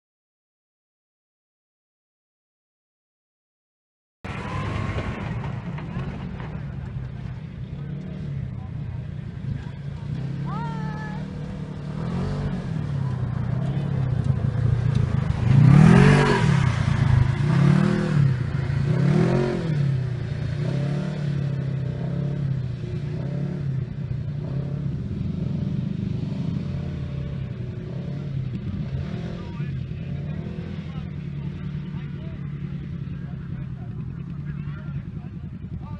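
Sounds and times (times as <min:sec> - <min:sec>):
off-road vehicle engine revving: 0:04.3 - 0:35.9.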